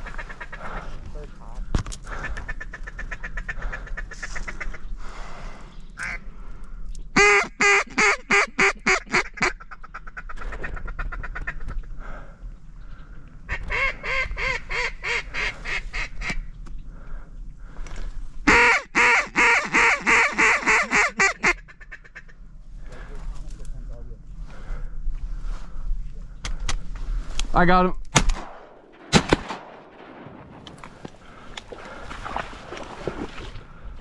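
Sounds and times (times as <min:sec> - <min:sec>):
faint duck quacking: 0:00.0 - 0:01.2, 0:02.1 - 0:04.9
duck call quacking: 0:07.2 - 0:10.3, 0:18.5 - 0:22.3.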